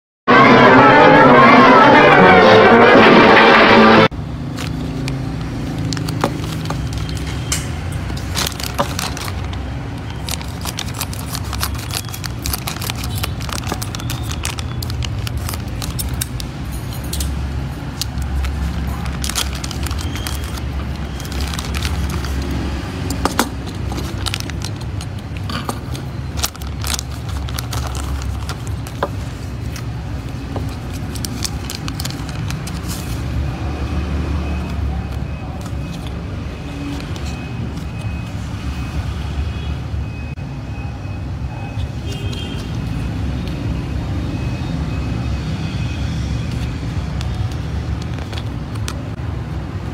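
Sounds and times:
plastic bags crinkling: 4.4s - 33.4s, 46.6s - 49.1s.

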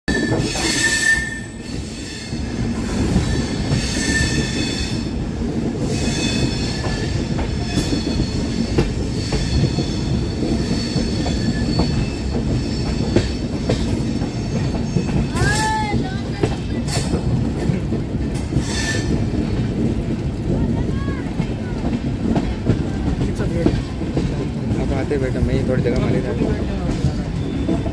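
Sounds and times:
high-pitched wheel squeal: 0.1s - 2.6s, 3.2s - 5.0s
train wheels rumbling on rails: 0.1s - 27.9s.

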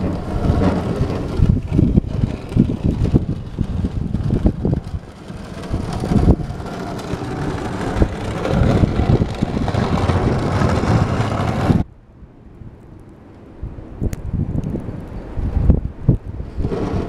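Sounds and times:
plough blade scraping snow: 0.0s - 11.8s, 16.4s - 17.0s
wind buffeting microphone: 0.0s - 11.9s, 13.5s - 17.0s.

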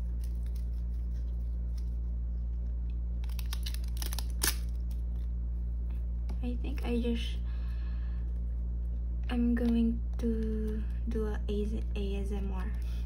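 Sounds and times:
plastic sleeves crinkling: 0.0s - 5.4s
steady low hum: 0.0s - 13.0s.

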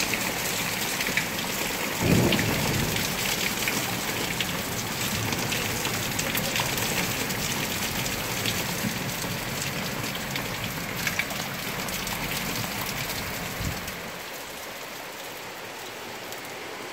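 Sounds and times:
close raindrop hits: 0.0s - 14.2s
heavy rain pouring: 0.0s - 16.9s.

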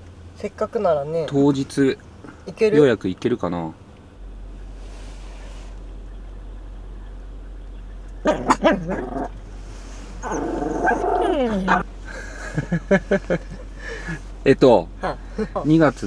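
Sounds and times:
van hum on the road: 0.0s - 16.0s
dog barking: 8.2s - 9.3s.

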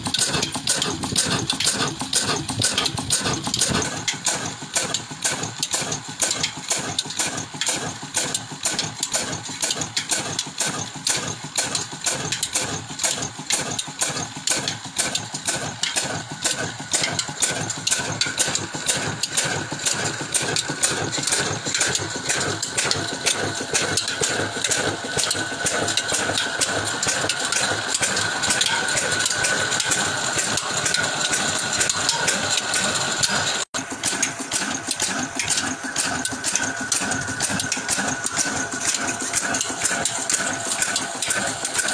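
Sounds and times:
diesel engine running: 0.0s - 41.9s.

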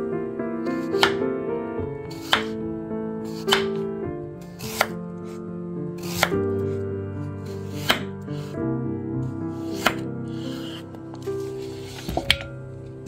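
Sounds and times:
soft background music: 0.0s - 13.0s
knife cutting on wooden board: 0.7s - 1.2s, 2.1s - 2.6s, 3.3s - 3.8s, 4.4s - 5.0s, 6.0s - 6.4s, 7.5s - 8.5s, 9.6s - 12.5s.

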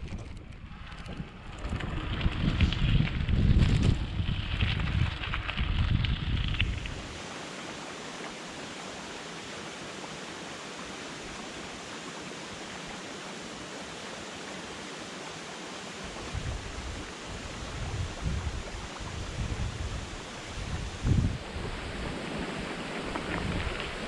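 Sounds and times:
wind buffeting microphone: 0.0s - 7.2s, 16.0s - 24.0s
water rushing over gravel: 0.6s - 24.0s.

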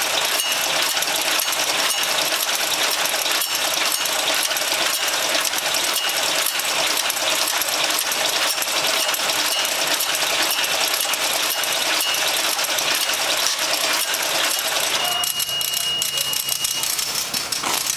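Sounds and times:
machine clattering rapidly: 0.0s - 17.9s
high alarm beep: 0.4s - 0.8s, 11.6s - 12.4s, 14.6s - 17.1s.

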